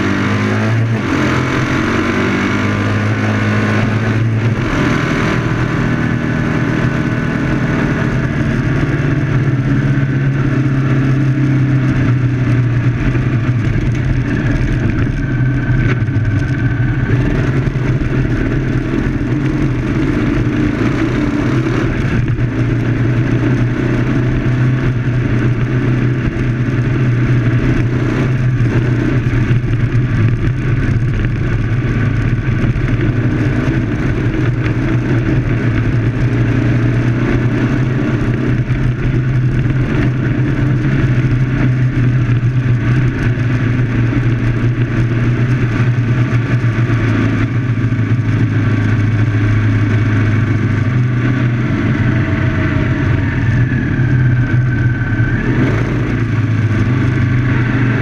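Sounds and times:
car engine running hard: 0.0s - 58.0s.

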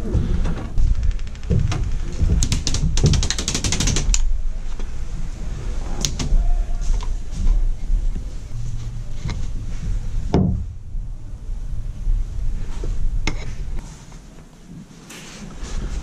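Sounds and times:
rapid clicks and rattles: 0.0s - 4.3s.

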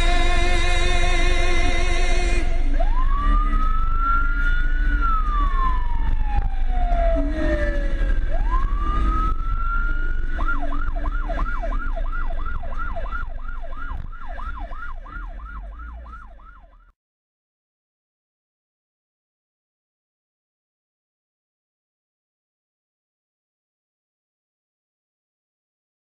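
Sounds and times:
low engine and wind rumble: 0.0s - 16.8s
motorcycle siren wailing and yelping: 2.5s - 16.9s.

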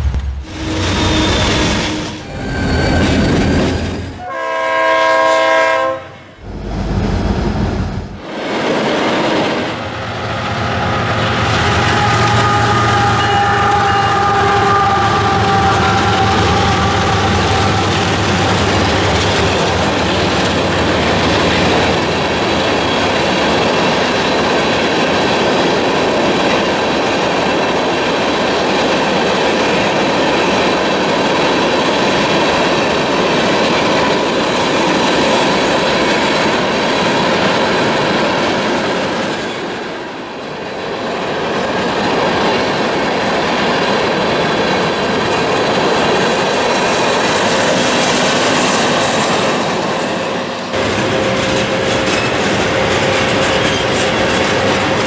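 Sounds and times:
train wheels rolling on rails: 0.0s - 5.5s, 6.4s - 55.0s
locomotive engine hum: 0.0s - 5.6s, 6.4s - 8.3s, 9.8s - 25.2s, 42.4s - 55.0s.

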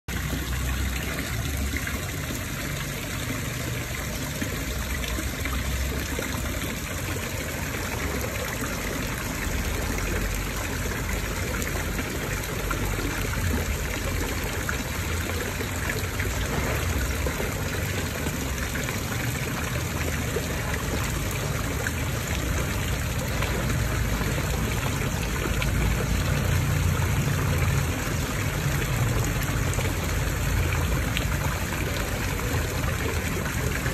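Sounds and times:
fountain jets splashing: 0.1s - 33.9s
waterfall splashing into pond: 0.1s - 33.9s.

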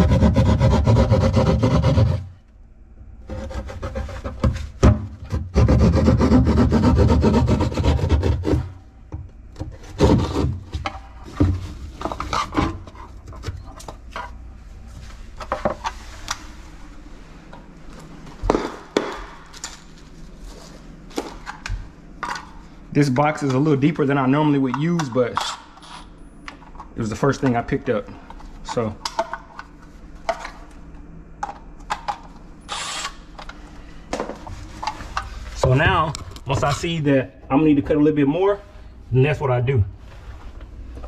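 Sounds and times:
power saw cutting drywall: 0.0s - 2.3s, 5.2s - 8.8s, 9.9s - 10.6s
scraping against drywall: 0.0s - 2.4s, 3.2s - 8.8s, 9.7s - 14.2s.

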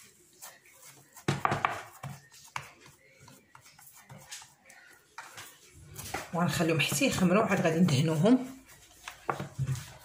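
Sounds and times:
hands patting dough on metal tray: 0.0s - 10.0s.

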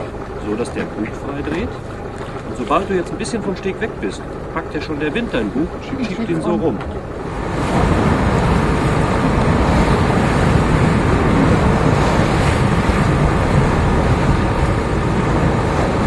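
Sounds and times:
sea water rushing past: 0.0s - 16.0s
wind buffeting microphone: 0.0s - 16.0s.

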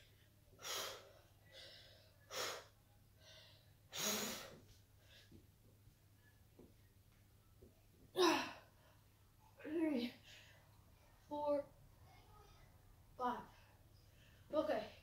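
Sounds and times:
boy breathing hard: 0.6s - 5.4s.

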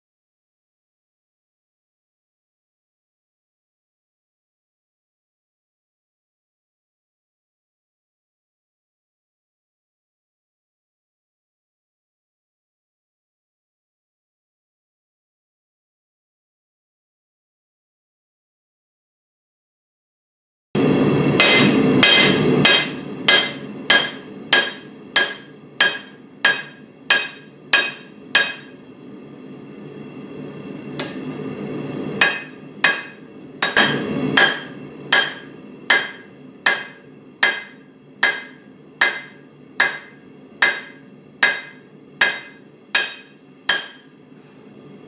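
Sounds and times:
forge roaring: 20.8s - 23.2s
hammer striking metal on anvil: 21.3s - 28.8s, 31.0s - 31.3s, 32.2s - 44.2s.

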